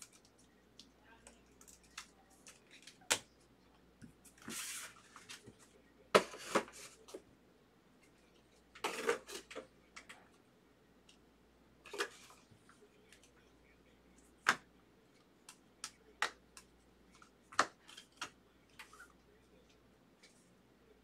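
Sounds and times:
cards rustling: 0:00.0 - 0:03.4
cards clicking and tapping: 0:15.4 - 0:19.0.

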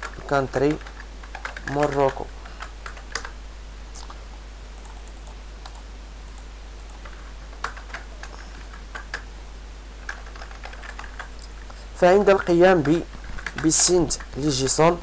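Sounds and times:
computer keyboard typing: 0:00.0 - 0:03.3, 0:04.8 - 0:09.2, 0:10.0 - 0:11.5, 0:12.2 - 0:14.5.

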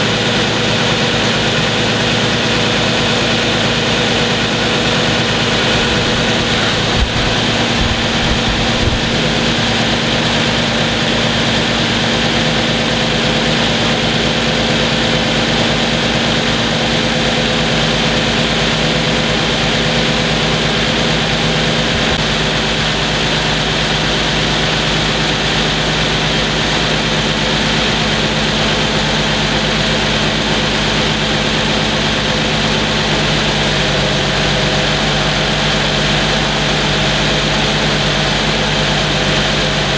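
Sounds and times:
car engine idling: 0:00.0 - 0:39.9
engine ticking and tapping: 0:00.0 - 0:39.9.

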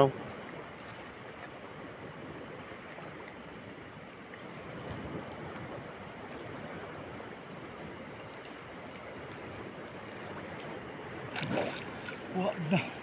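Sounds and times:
shallow water sloshing: 0:04.2 - 0:13.0
water splash: 0:11.2 - 0:13.0.

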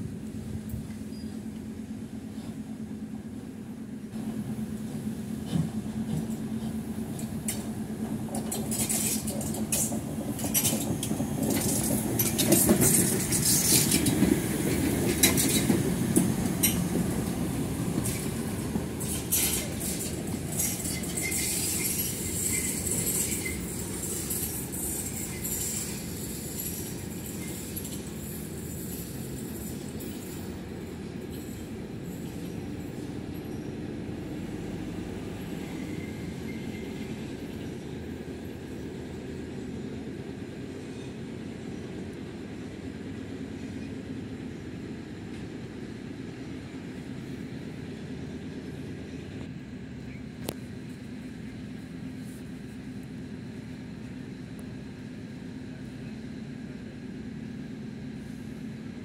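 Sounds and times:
steam locomotive rumbling past: 0:00.0 - 0:59.0
wheels clanking over rail joints: 0:04.9 - 0:30.6.

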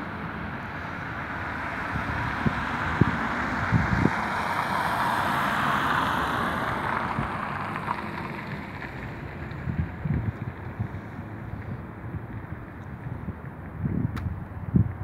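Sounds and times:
wind buffeting microphone: 0:01.4 - 0:05.4, 0:06.6 - 0:15.0
car tyres hissing on road: 0:01.6 - 0:11.6.

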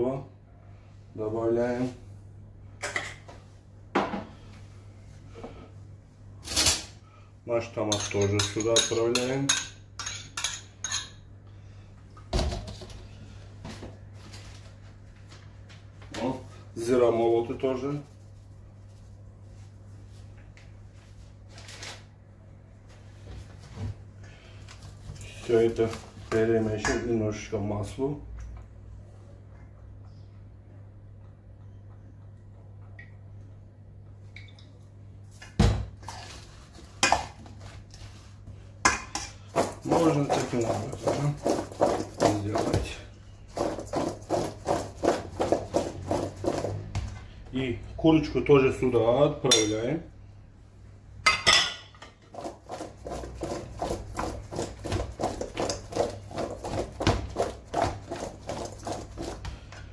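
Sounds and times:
steady low hum: 0:00.0 - 0:59.9
metal spoon clanking on steel bowl: 0:07.9 - 0:11.2, 0:49.5 - 0:49.8.

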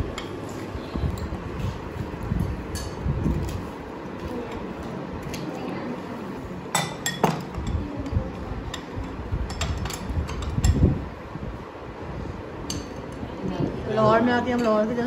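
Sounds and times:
crockery and cutlery clinking: 0:06.7 - 0:10.8.

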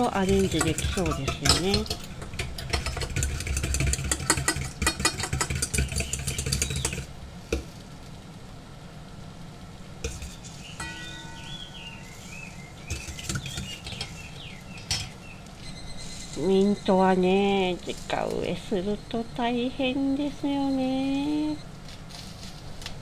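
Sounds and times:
utensil tapping bowl: 0:00.0 - 0:07.1
whisk beating in metal bowl: 0:00.0 - 0:07.1, 0:12.8 - 0:15.1.

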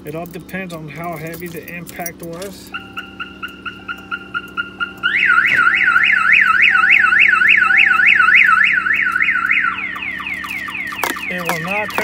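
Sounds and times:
car alarm siren: 0:02.6 - 0:12.0.

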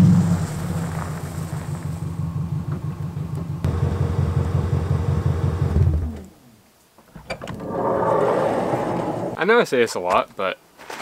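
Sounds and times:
van engine running: 0:00.0 - 0:06.2
engine winding down: 0:00.0 - 0:06.3.

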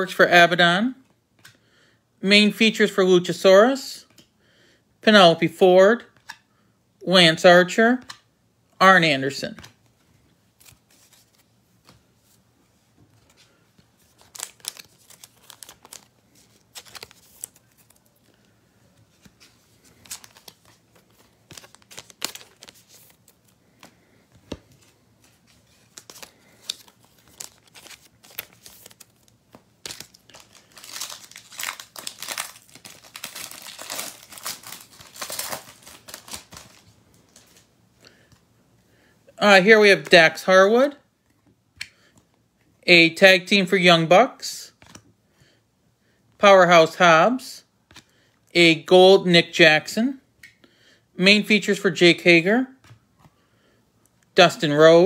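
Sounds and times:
wrapper crinkling and tearing: 0:14.0 - 0:18.4, 0:19.2 - 0:23.8, 0:24.8 - 0:37.7.

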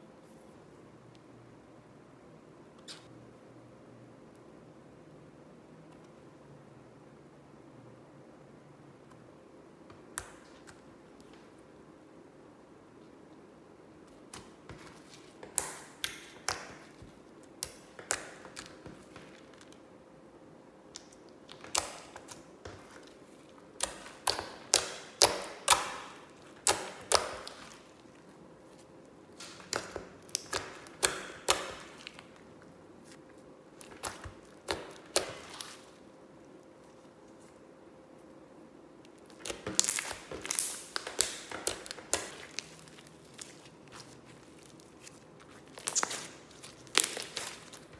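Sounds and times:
slime clicking and popping: 0:15.4 - 0:19.8, 0:23.8 - 0:27.8, 0:29.3 - 0:32.4, 0:33.8 - 0:35.8, 0:39.1 - 0:43.5, 0:45.7 - 0:47.9.

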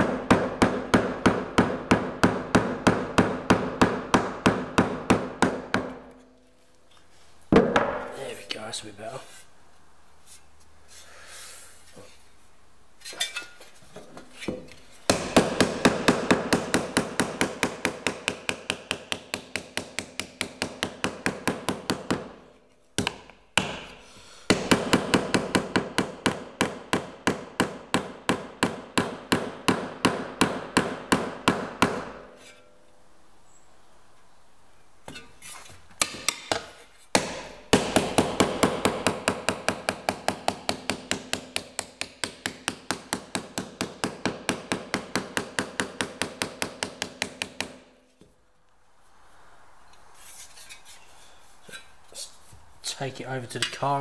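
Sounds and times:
mallet beating sheet metal: 0:15.1 - 0:22.4.

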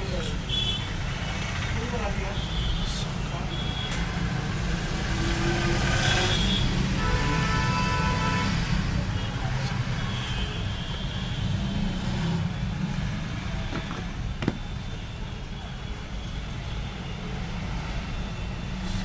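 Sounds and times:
phone tapping on table: 0:13.7 - 0:14.6.

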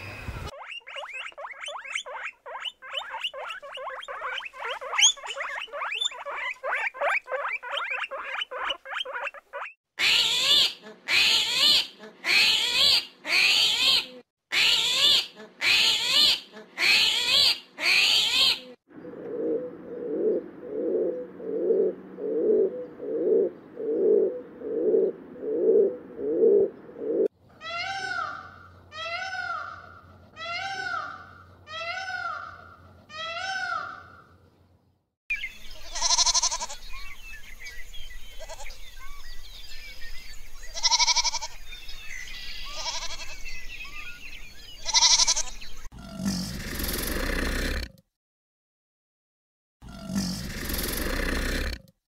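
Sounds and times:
chattering chirps: 0:00.5 - 0:09.8.

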